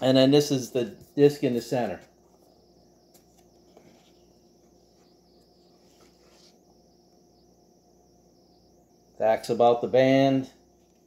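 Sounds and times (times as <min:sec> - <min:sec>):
faint steady hum: 0:00.0 - 0:11.0
paper rustling: 0:03.1 - 0:06.6.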